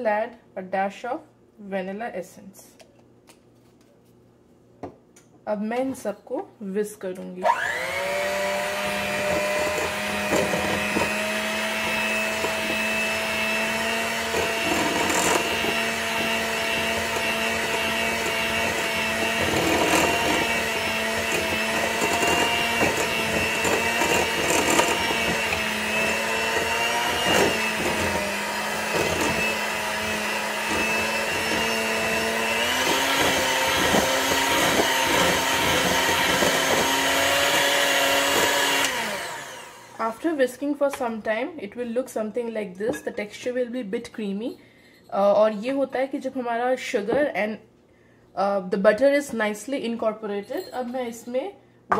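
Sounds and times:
electric hand mixer running: 7.4s - 40.3s.

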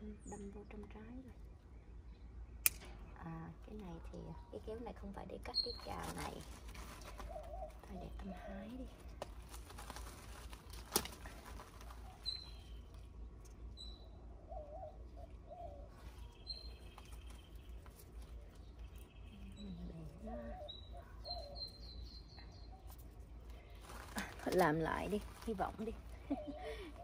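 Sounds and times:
birds chirping: 0.0s - 27.0s
sharp click: 2.6s - 3.0s
dove cooing: 5.8s - 9.0s, 14.2s - 16.2s, 19.3s - 21.8s, 23.9s - 27.0s.

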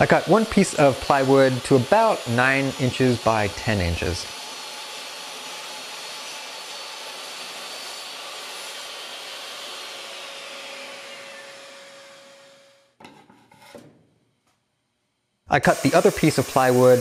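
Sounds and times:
table saw motor whirring: 0.0s - 12.9s, 15.6s - 17.0s
saw motor coasting down: 15.6s - 17.0s.

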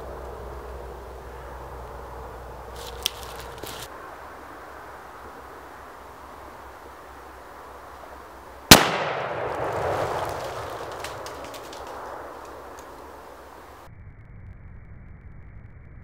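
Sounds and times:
rifle shot with rolling echo: 8.7s - 12.8s.

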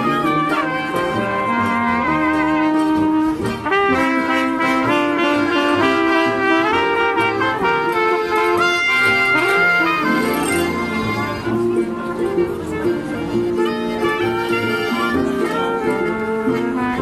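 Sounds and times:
brass band playing: 0.0s - 17.0s.

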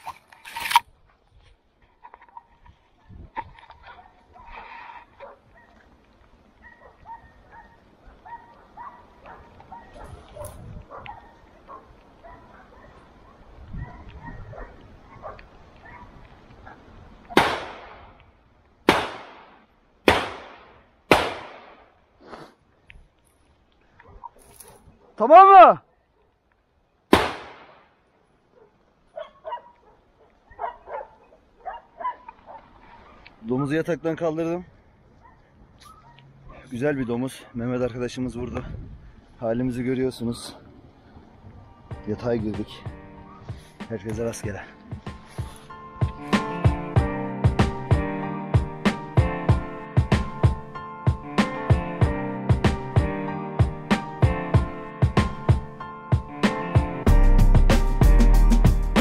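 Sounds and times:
dogs yelping barks: 3.8s - 5.9s, 6.5s - 17.4s, 24.0s - 25.3s, 28.5s - 33.7s, 35.2s - 36.7s, 43.2s - 43.7s.

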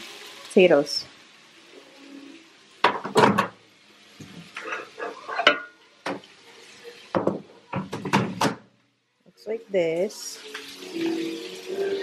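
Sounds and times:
dish clattering: 2.8s - 3.6s, 4.6s - 6.2s, 7.1s - 8.6s.

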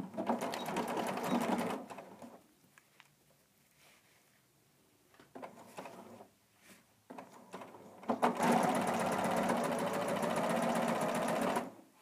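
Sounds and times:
sewing machine stitching: 0.0s - 2.4s, 7.1s - 11.8s.

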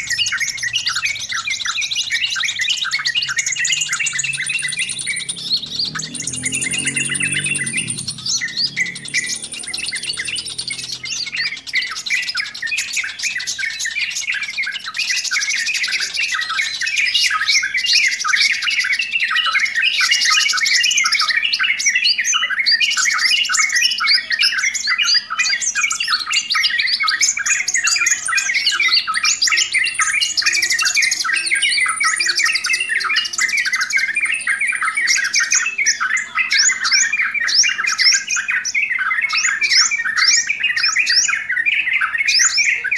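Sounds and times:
bird chattering: 0.0s - 17.2s.

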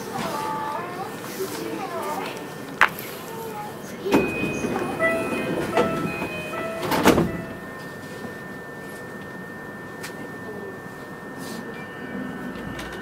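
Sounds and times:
train car hum: 0.0s - 13.0s
thin constant tone: 3.5s - 13.0s
train doors shutting thud: 4.0s - 7.9s
door chime: 4.0s - 13.0s.

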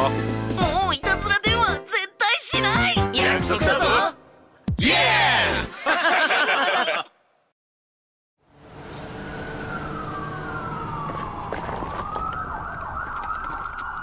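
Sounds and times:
siren sliding and warbling: 9.0s - 14.0s.

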